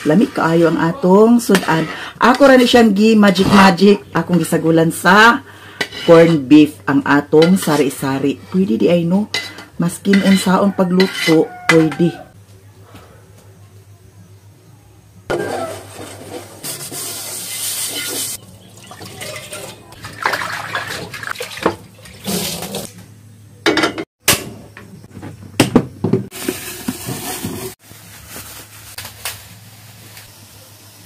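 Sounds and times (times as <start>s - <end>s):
water running and splashing: 17.0s - 22.9s.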